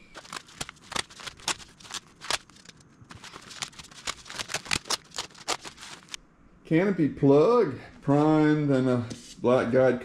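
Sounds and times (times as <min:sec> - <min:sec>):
fabric ripping off resin: 0:00.1 - 0:06.2.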